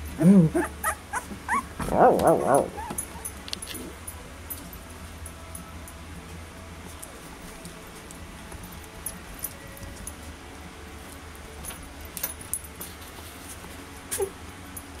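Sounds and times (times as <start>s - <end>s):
puppy squeak: 0.5s - 3.2s
puppies rustling on blankets: 6.2s - 14.5s.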